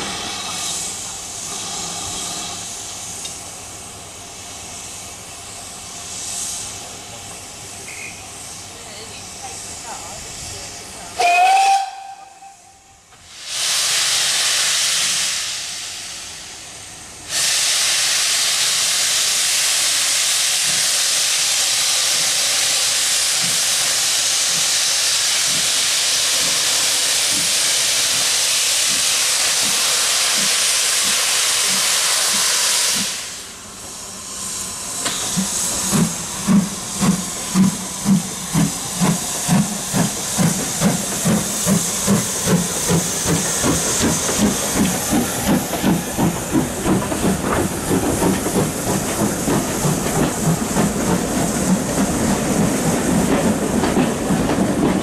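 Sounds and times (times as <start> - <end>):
loud hiss of steam: 0.0 - 55.0
steam whistle: 11.2 - 13.0
steam engine exhaust beats: 17.2 - 55.0.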